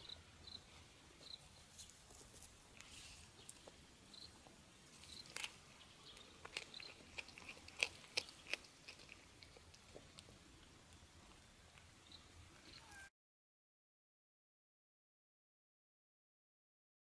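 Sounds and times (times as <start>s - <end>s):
cat chewing crunching clicks: 5.2s - 10.4s.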